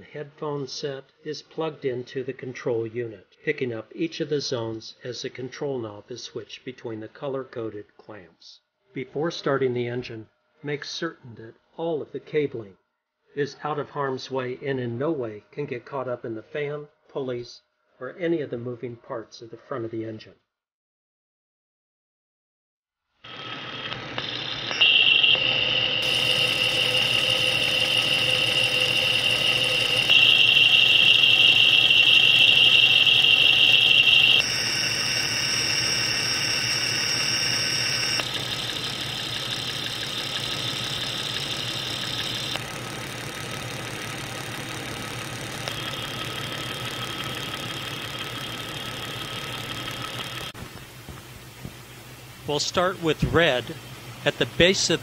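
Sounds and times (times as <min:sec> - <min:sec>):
high-pitched whines and ringing: 0:23.3 - 0:50.6
engine running: 0:25.4 - 0:51.9.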